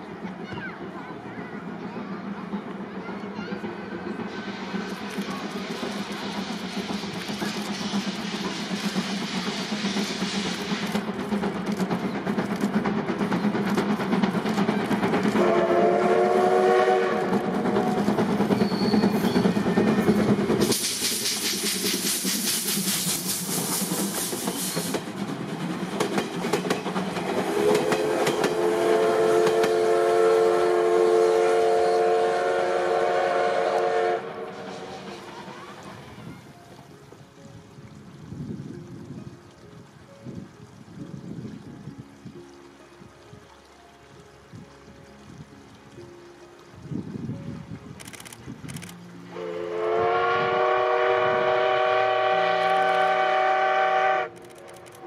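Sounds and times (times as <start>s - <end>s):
steam locomotive running: 0.0s - 41.6s, 46.5s - 55.0s
loud steam hiss: 2.2s - 36.7s, 49.3s - 54.3s
steam whistle: 15.4s - 17.8s, 27.5s - 35.1s, 49.3s - 54.4s.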